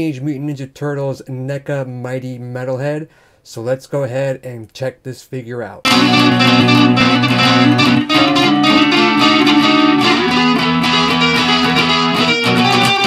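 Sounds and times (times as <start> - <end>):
electric guitar music: 5.9 - 13.0.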